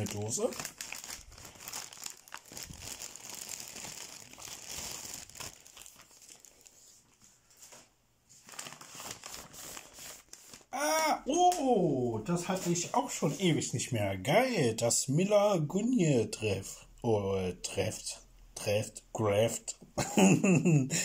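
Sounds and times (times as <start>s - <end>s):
bag crinkling and rustling: 0.0s - 10.7s.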